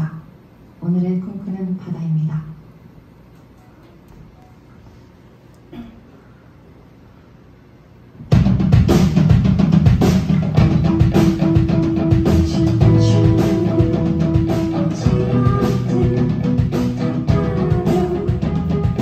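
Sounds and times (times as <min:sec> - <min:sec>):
drum kit: 0:08.2 - 0:19.0
live rock band playing: 0:08.5 - 0:19.0.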